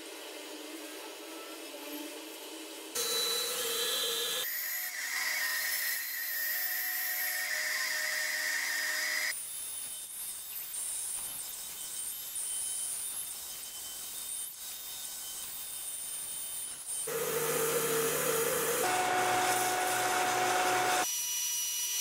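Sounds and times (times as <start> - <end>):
band saw whine: 3.0 - 5.8, 17.1 - 21.1
saw blade rasping in wood: 16.9 - 21.1.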